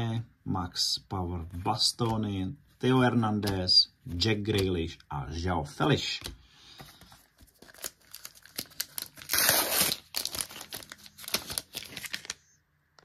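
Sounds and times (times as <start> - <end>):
card pack wrapper crinkling: 6.8 - 12.5
wrapper ripping: 7.4 - 12.4.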